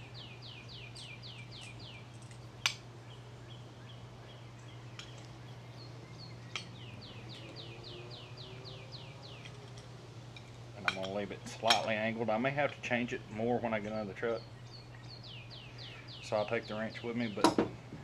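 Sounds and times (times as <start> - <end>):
songbird whistling song: 0.0 - 9.7, 13.9 - 17.5
steady low hum: 0.0 - 18.0.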